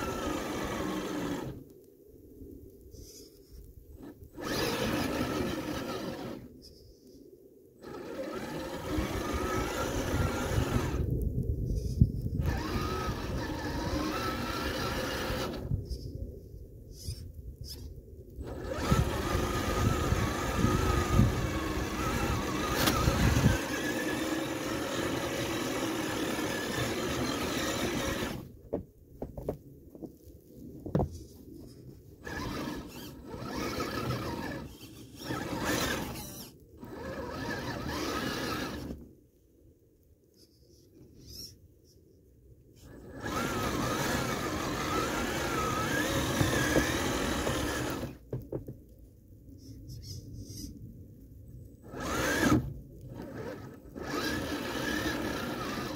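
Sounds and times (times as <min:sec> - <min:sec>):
toy car electric motor whining: 0:00.0 - 0:01.7, 0:04.0 - 0:06.8, 0:07.8 - 0:16.1, 0:16.9 - 0:28.6, 0:31.0 - 0:39.1, 0:40.4 - 0:41.6, 0:42.8 - 0:48.3, 0:51.8 - 0:55.9.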